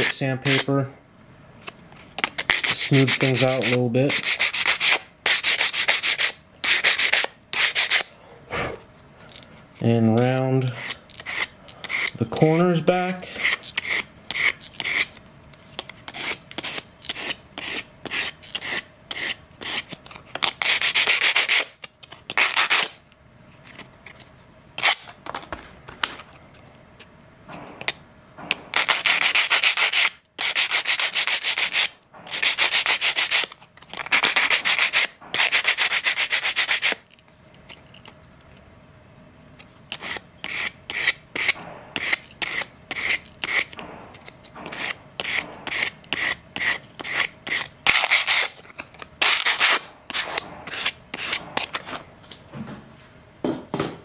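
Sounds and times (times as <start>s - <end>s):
sandpaper scraping plastic: 2.3s - 8.1s, 13.1s - 15.2s, 15.8s - 23.0s, 27.8s - 37.1s, 39.9s - 52.0s.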